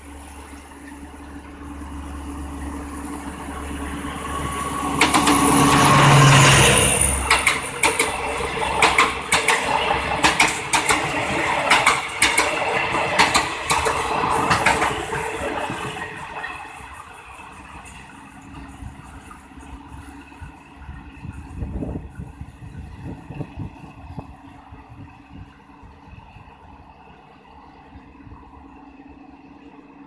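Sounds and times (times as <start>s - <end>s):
diesel locomotive engine passing: 0.0s - 30.0s
train wheels clacking on rails: 3.1s - 24.6s.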